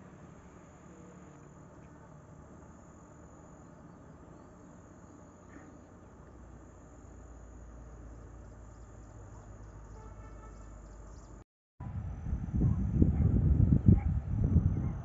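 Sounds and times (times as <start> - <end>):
insects trilling: 0.4 - 11.4
low rumble: 11.8 - 15.0.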